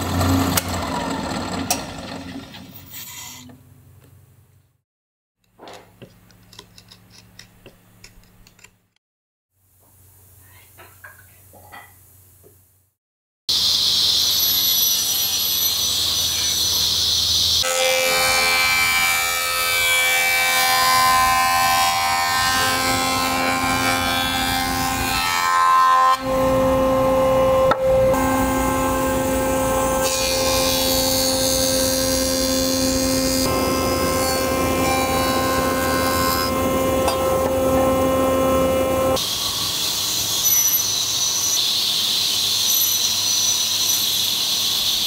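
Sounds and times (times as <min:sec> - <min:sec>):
jointer planing wood: 0:17.6 - 0:39.2.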